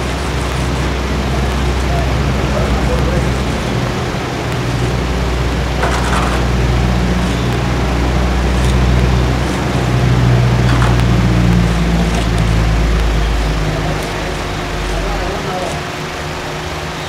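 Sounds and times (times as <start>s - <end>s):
engine drone: 0.0s - 17.0s.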